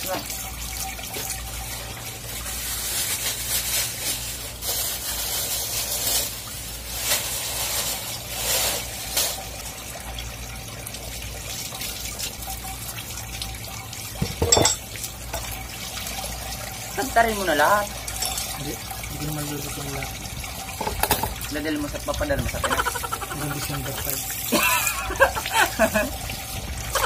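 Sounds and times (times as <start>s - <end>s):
hose water splashing on concrete: 0.0s - 27.0s
plastic bag crinkling: 2.3s - 9.6s.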